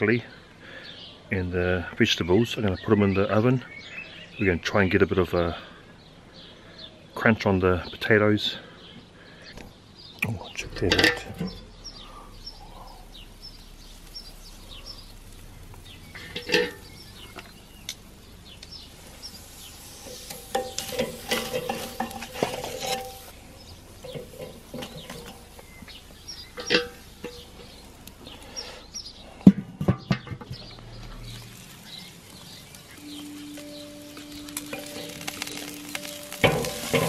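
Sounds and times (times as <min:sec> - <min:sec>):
metal tongs clinking on grill grate: 0:16.2 - 0:18.8, 0:19.4 - 0:23.4, 0:24.0 - 0:25.8, 0:26.4 - 0:27.9, 0:33.1 - 0:37.0.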